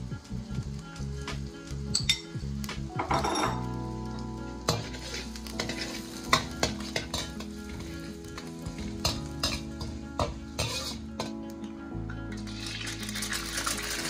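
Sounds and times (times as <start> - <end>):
onion and garlic sizzling in oil: 0.0 - 14.0
metal ladle scraping a wok: 4.7 - 11.4.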